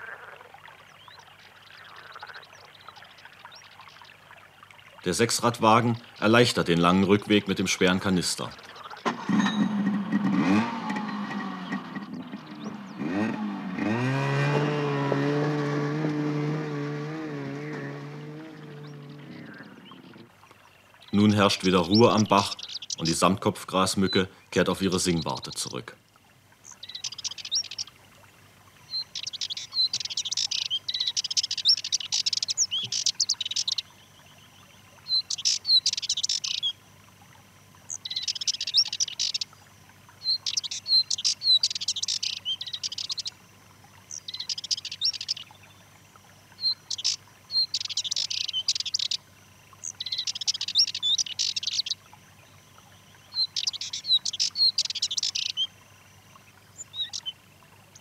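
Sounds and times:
warbler scratchy chattering song: 0:21.1 - 0:24.2, 0:26.7 - 0:27.9, 0:28.9 - 0:33.9, 0:35.1 - 0:36.8, 0:37.9 - 0:39.5, 0:40.2 - 0:43.3, 0:44.1 - 0:45.6, 0:46.6 - 0:49.2, 0:49.8 - 0:52.0, 0:53.3 - 0:55.7, 0:56.8 - 0:57.3.

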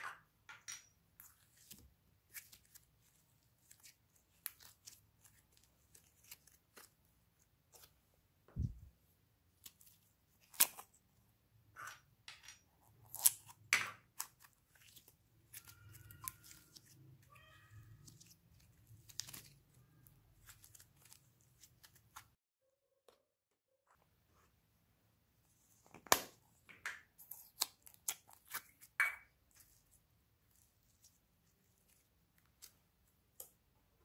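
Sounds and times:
slime squeaky squelches: 0:14.2 - 0:22.2.

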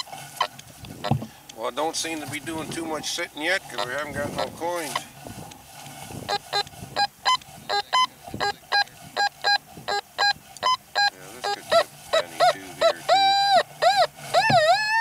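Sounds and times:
metal detector beeping: 0:06.2 - 0:15.0.

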